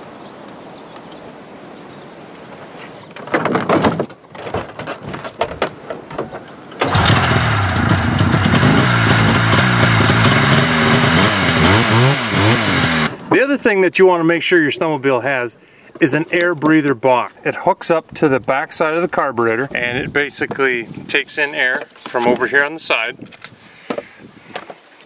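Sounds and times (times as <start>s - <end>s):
two-stroke engine starting and running: 6.8s - 13.3s.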